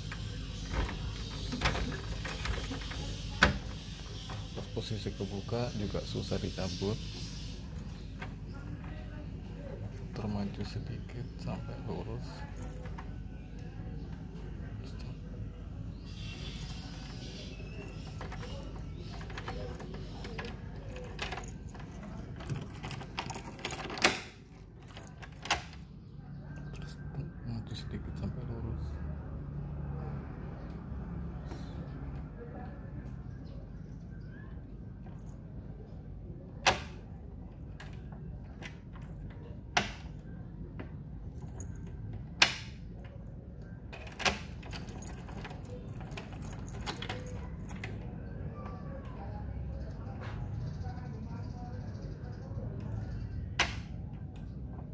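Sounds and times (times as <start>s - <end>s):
keys jangling: 0.1s - 4.3s, 16.5s - 25.8s, 41.3s - 41.9s, 44.0s - 48.0s
key clicking in door lock: 16.7s - 25.8s, 43.9s - 48.0s.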